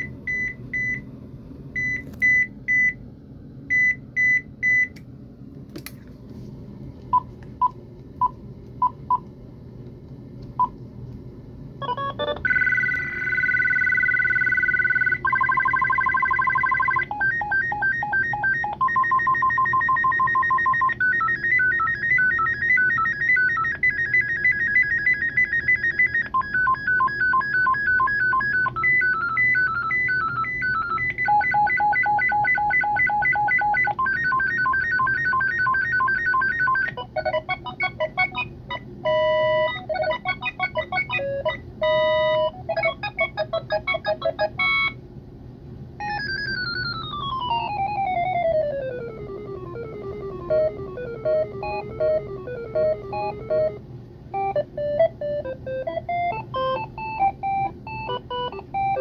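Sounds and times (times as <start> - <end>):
electronic ringtone melodies: 11.8 - 45.0, 46.0 - 53.8, 54.4 - 59.0.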